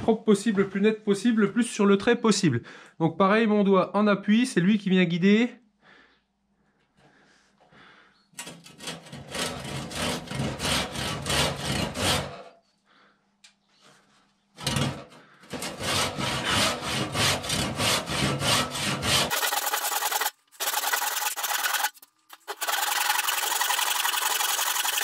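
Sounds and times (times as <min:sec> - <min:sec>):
handsaw cutting wood: 0:08.5 - 0:12.4, 0:15.5 - 0:25.0.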